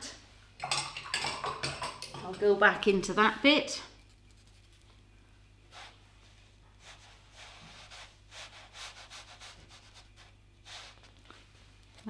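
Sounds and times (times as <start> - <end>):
low steady hum: 0.0 - 12.0
paintbrush strokes on paper: 5.7 - 12.0.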